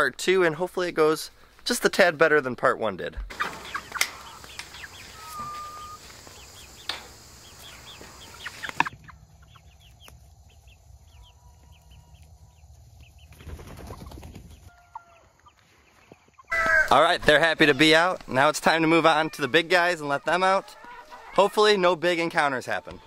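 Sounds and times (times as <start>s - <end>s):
wings flapping: 3.3s - 6.7s, 7.6s - 9.2s, 12.8s - 14.7s
chickens clucking and peeping: 3.3s - 23.0s.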